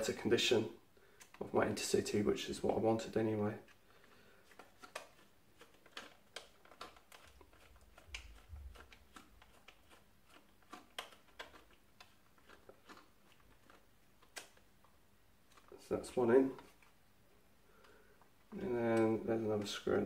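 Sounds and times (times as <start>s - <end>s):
plastic model shifting in hands: 4.5s - 14.6s.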